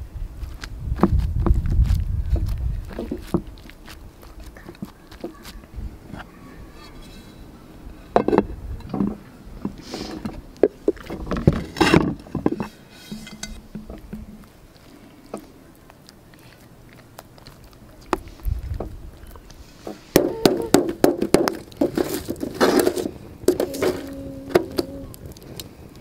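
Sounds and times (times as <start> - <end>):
clay bowls knocking and scraping: 8.1 - 14.5.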